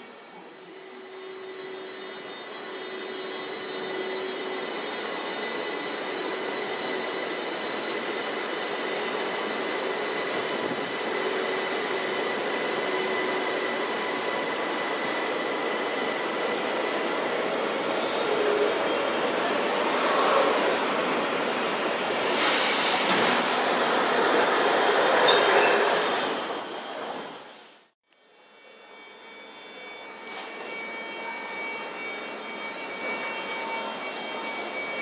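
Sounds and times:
train coaches rolling past: 0.4s - 27.8s
high whine: 18.1s - 22.3s.

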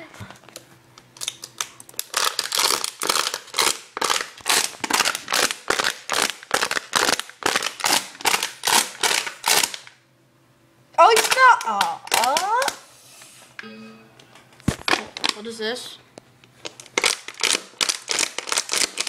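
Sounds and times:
plastic bottle crinkling: 1.2s - 9.8s, 14.7s - 15.5s, 16.6s - 19.0s.

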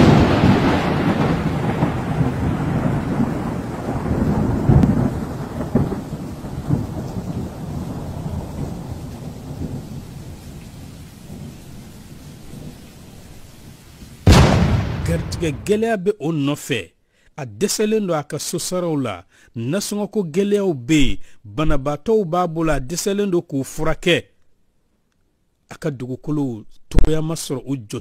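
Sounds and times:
thunder rumbling: 0.0s - 13.2s, 14.2s - 15.9s
rain: 0.0s - 15.7s.

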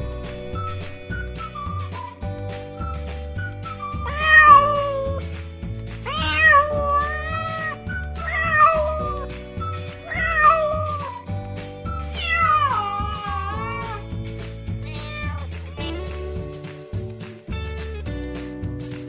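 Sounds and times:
background music with bass line: 0.0s - 19.0s
cat meowing: 4.0s - 5.2s, 6.1s - 9.3s, 10.1s - 11.2s, 12.1s - 14.1s, 14.8s - 16.0s.

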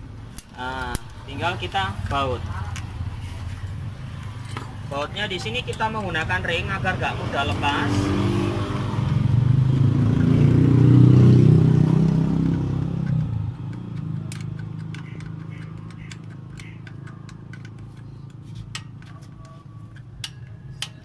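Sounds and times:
wrench clicking on bolt: 12.4s - 21.0s.

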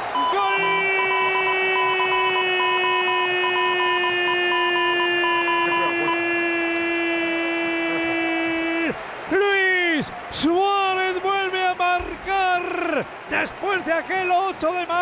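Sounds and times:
stadium crowd noise: 0.0s - 15.0s
commentator shouting goal: 0.1s - 15.0s
high pulsing beep: 0.2s - 6.2s.

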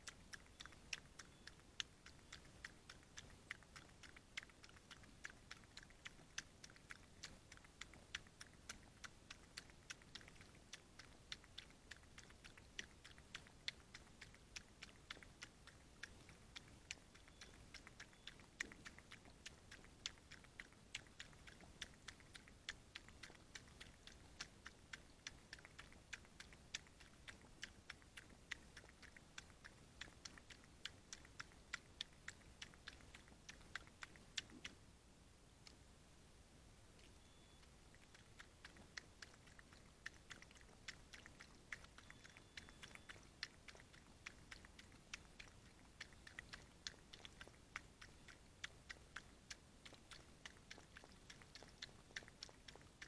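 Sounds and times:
fox lapping water: 0.0s - 34.8s, 37.8s - 53.0s
low hiss: 0.0s - 53.0s.

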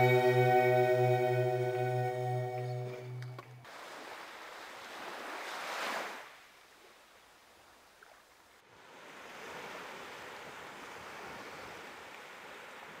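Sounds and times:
sea waves washing onto beach: 3.6s - 7.6s, 8.8s - 13.0s.

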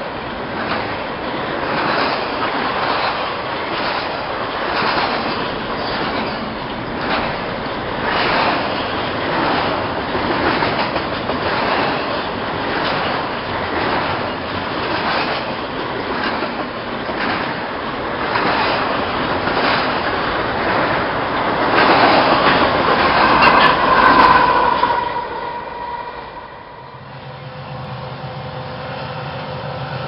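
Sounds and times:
wheels clacking over rail joints: 0.0s - 26.0s
freight train wheels rumbling: 0.0s - 30.0s
locomotive whine: 18.8s - 30.0s.

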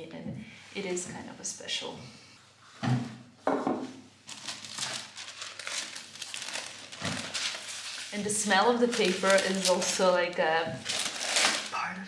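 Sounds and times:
tissue paper crinkling: 4.2s - 11.8s.

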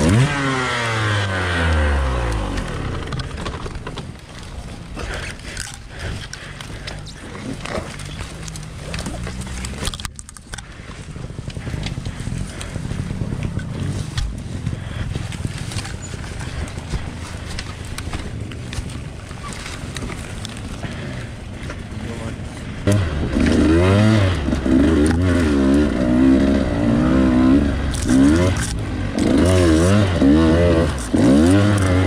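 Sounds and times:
dirt bike engine at low revs: 0.0s - 32.0s
knocks and clatter: 2.4s - 10.7s.

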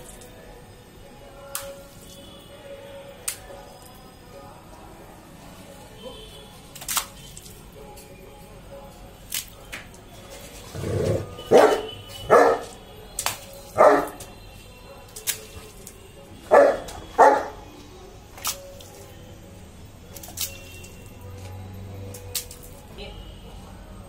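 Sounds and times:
dog barking: 11.5s - 12.7s, 13.8s - 14.2s, 16.5s - 17.6s.

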